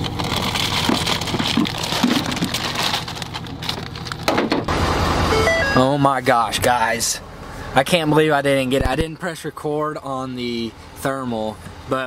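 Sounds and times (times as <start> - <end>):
vehicle idling hum: 0.0 - 12.0.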